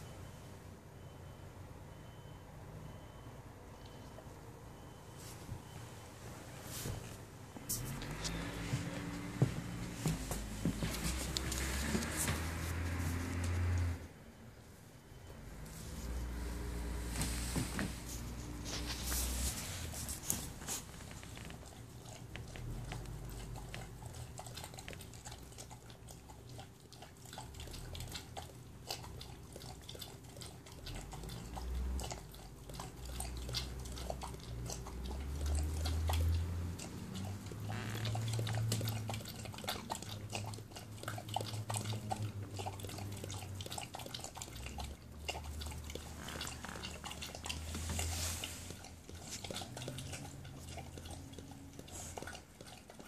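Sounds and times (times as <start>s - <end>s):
dog lapping water: 18.5s - 53.0s.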